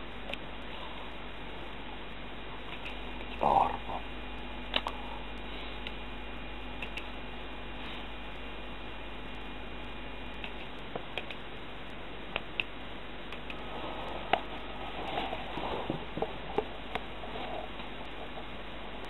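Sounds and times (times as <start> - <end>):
steady hiss: 0.0 - 19.0
muffled rustling: 13.6 - 19.0.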